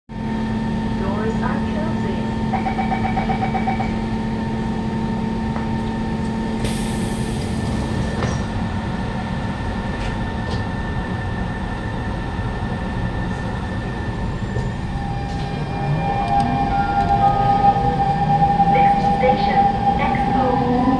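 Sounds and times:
train equipment hum: 0.1 - 20.9
traction motors whining: 13.4 - 20.9.

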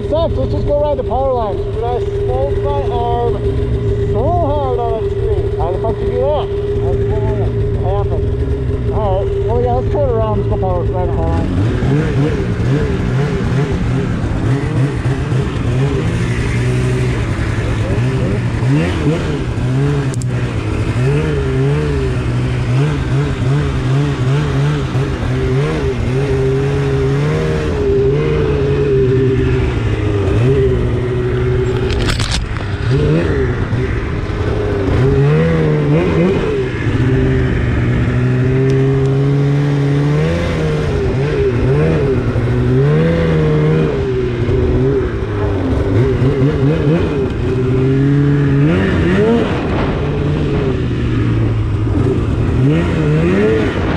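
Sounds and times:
snowmobile engine revving: 0.0 - 53.9
sharp click: 20.1 - 20.3.

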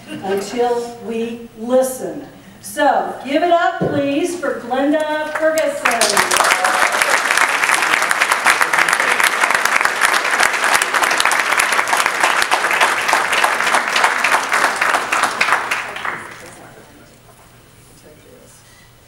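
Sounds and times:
audience applauding: 5.4 - 16.9.

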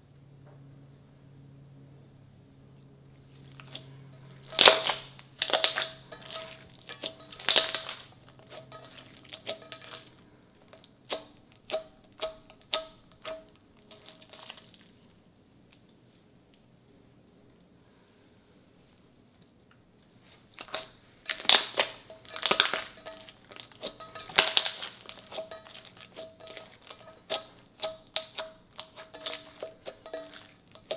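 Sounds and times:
slime popping and crackling: 4.4 - 10.1, 10.7 - 15.0, 20.6 - 30.9.

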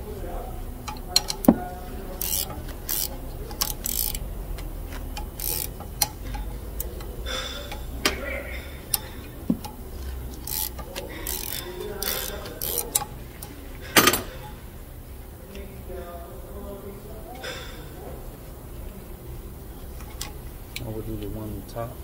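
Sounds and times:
metallic rattles: 0.0 - 14.8
wrench clicking on metal bolt: 0.8 - 14.6, 20.0 - 20.4.

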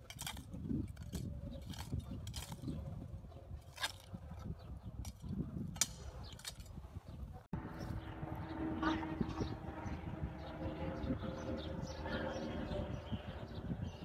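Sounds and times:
steady low rumble: 5.1 - 14.0.

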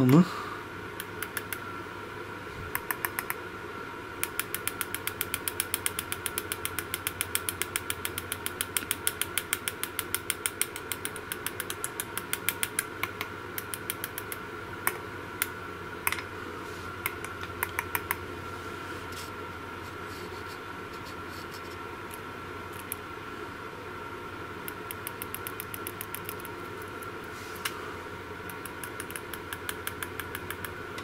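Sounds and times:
faint steady whine: 0.0 - 31.0
rapid electrical clicking: 1.0 - 1.6, 2.7 - 3.4, 4.2 - 16.2, 17.0 - 18.2, 22.1 - 23.1, 24.6 - 27.3, 28.4 - 31.0.

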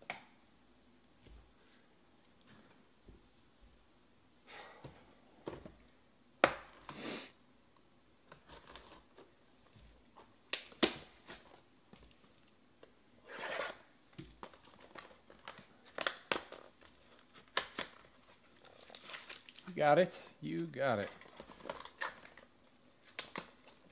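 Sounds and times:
plastic crinkles: 14.3 - 23.9.

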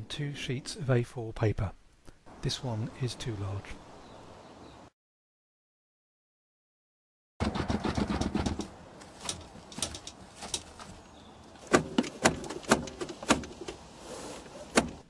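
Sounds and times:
handling noise: 7.4 - 15.0
car seat clunks: 14.7 - 15.0.

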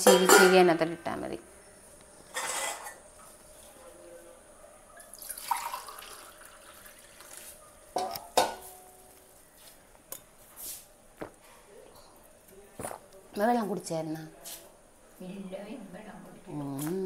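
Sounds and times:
water running into a bowl: 5.0 - 7.4.

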